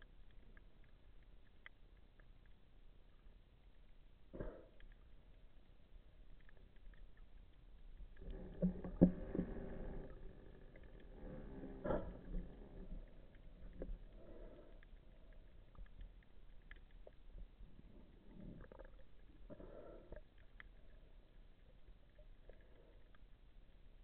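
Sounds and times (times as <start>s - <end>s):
low underwater rumble: 0.0s - 24.0s.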